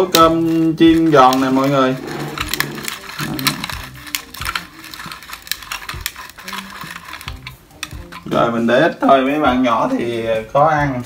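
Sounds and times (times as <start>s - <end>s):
pepper grinder clicking: 0.0s - 8.6s.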